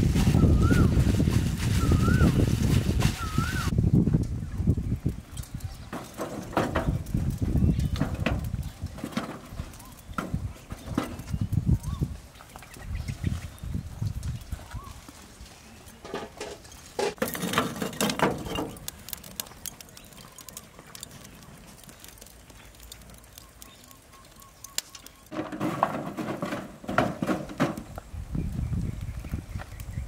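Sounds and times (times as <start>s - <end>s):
stick scraping charcoal in metal trough: 5.3s - 11.5s, 15.9s - 28.0s
knocks and clatter: 5.9s - 7.2s, 7.9s - 11.3s, 16.0s - 19.8s, 25.3s - 27.9s.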